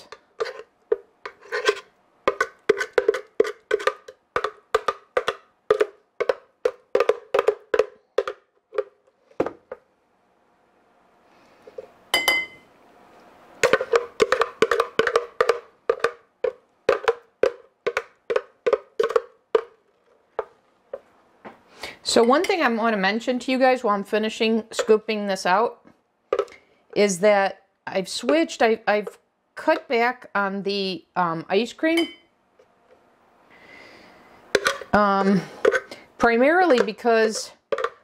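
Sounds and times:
hollow knocks on plastic jar: 2.3 - 9.8, 13.6 - 19.8, 37.7 - 38.0
spoon clinking against glass: 12.1 - 12.6.

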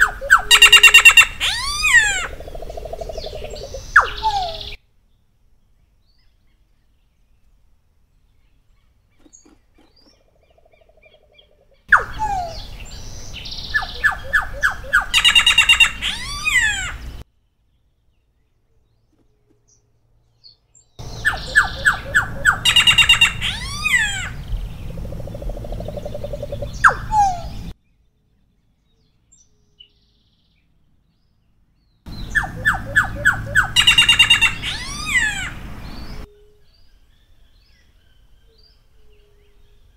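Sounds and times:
bird singing trills and whistles: 0.0 - 4.8, 9.2 - 17.2, 21.0 - 27.8, 32.1 - 39.9.

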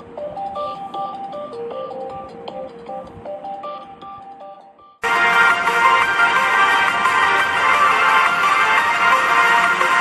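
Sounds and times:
loud full music: 5.0 - 10.0.

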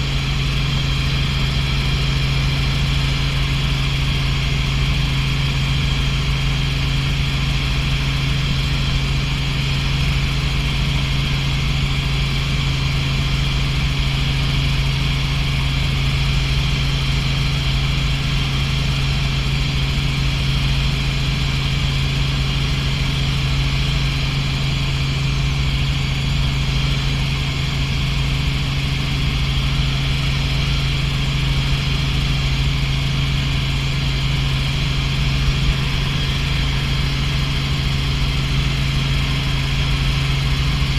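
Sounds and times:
helicopter engine and rotor drone: 0.0 - 40.9.

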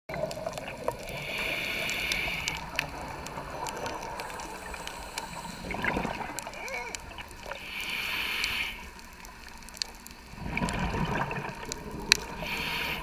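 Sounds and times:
underwater watery wash: 0.1 - 13.0
hiss: 1.0 - 2.8, 4.2 - 5.8, 7.4 - 9.2, 12.3 - 13.0.

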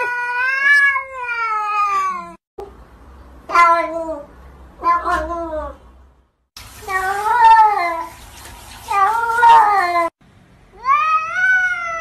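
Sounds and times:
cat meowing: 10.8 - 12.0.

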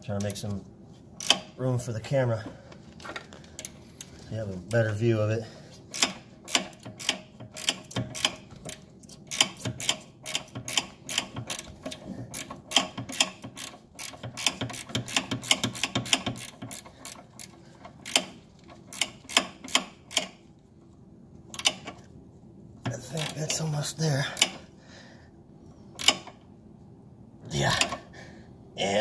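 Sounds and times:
ratchet wrench clicking: 1.2 - 1.5, 5.9 - 20.4, 21.5 - 22.0, 26.0 - 26.4.

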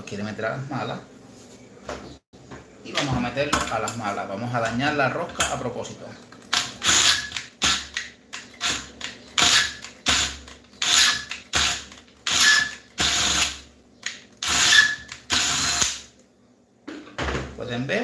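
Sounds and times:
cordless drill bursts: 6.8 - 7.9, 8.6 - 13.6, 14.4 - 16.0.

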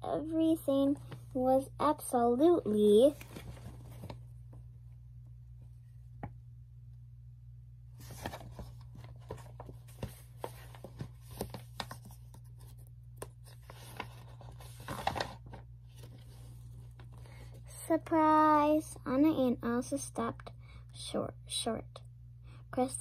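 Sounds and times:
steady low hum: 0.0 - 23.0
paper book pages rustling: 3.0 - 4.3, 8.0 - 17.7.

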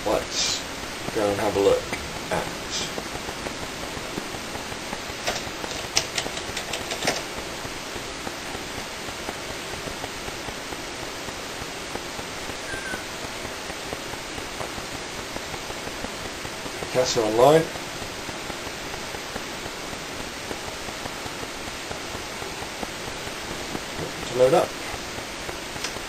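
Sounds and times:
steady hiss: 0.0 - 26.0
computer keyboard clicks: 5.2 - 7.2.

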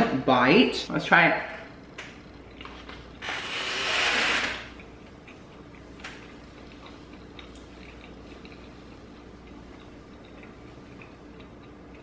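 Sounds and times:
faint chewing: 2.1 - 3.2, 4.7 - 12.0.

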